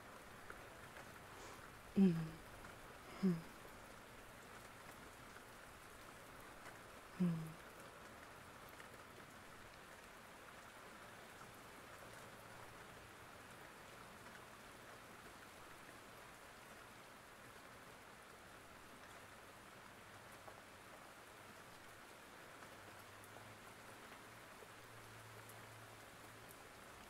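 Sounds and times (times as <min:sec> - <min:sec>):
soft steady rain: 0:00.0 - 0:27.0
vocal murmur: 0:02.0 - 0:02.4, 0:03.1 - 0:03.6, 0:07.2 - 0:07.6.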